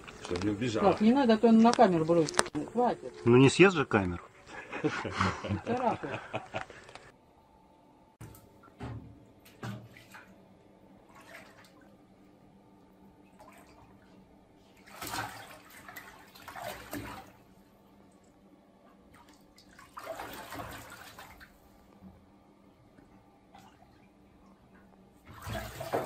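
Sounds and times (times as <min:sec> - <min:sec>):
water splashing in a bathtub: 0:08.2 - 0:26.0.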